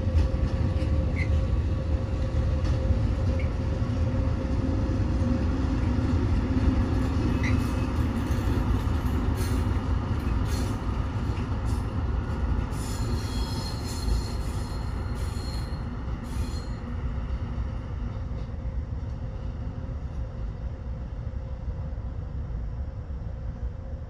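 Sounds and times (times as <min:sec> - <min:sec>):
train wheels squealing on rails: 0:00.0 - 0:04.1, 0:06.8 - 0:18.7
diesel locomotive engine rumble: 0:00.0 - 0:24.0.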